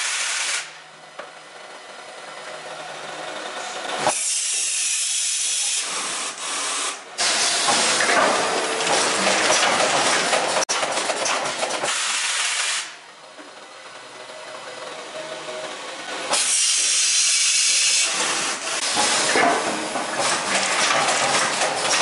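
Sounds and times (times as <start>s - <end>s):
cable stripping machine hiss: 0.0s - 0.8s, 3.7s - 8.1s, 11.8s - 13.0s, 16.3s - 20.8s.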